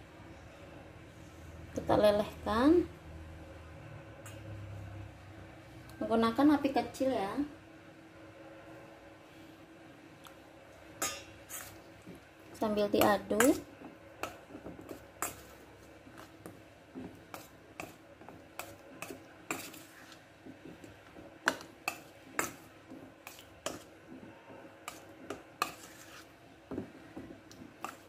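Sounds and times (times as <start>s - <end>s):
metal spoon scraping steel bowl: 11.0s - 11.8s, 18.6s - 20.2s, 24.8s - 26.3s.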